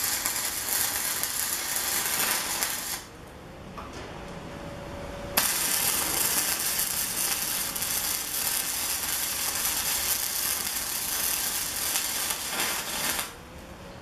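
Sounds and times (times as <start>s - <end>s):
welding arc crackling and sizzling: 0.0s - 3.1s, 5.4s - 13.4s.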